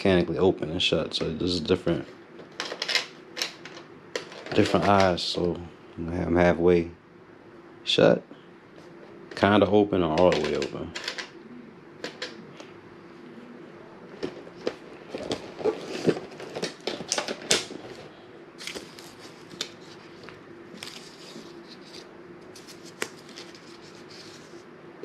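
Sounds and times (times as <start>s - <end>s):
plastic packaging rustling: 14.2s - 24.6s.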